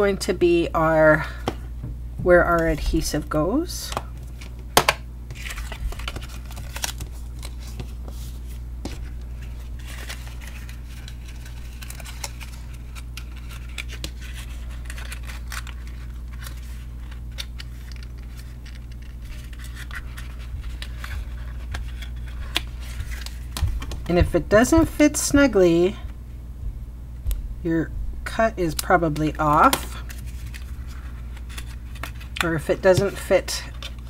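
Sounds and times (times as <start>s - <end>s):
paper rustling and scraping: 5.3s - 24.7s, 29.5s - 34.0s.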